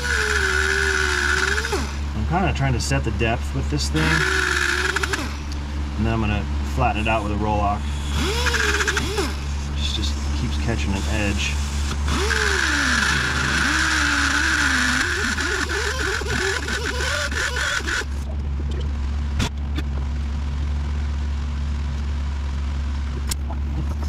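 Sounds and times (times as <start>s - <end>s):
die grinder whining on metal: 0.0s - 2.3s, 3.8s - 5.6s, 6.2s - 18.3s
steady low hum: 0.0s - 24.0s.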